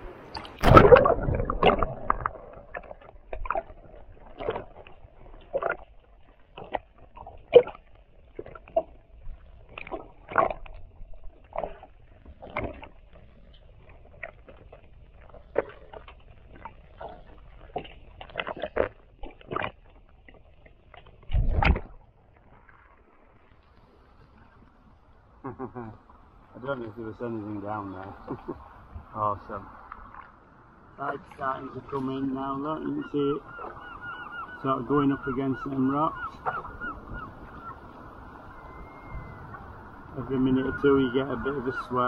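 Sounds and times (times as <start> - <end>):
muffled underwater sloshing: 0.0 - 42.0
water rush: 0.0 - 42.0
splash into water: 0.3 - 8.9, 9.7 - 10.8, 21.2 - 23.4
bubble pops: 0.6 - 3.6.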